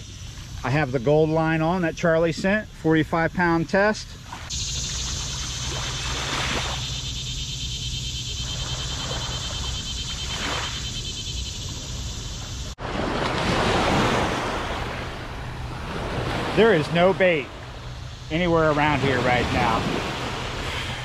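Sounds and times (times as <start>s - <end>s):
steady low hum: 0.0s - 12.8s
waves lapping on bank: 4.2s - 7.2s, 8.3s - 11.0s, 12.7s - 21.0s
wave breaking: 5.0s - 7.0s, 12.8s - 21.0s.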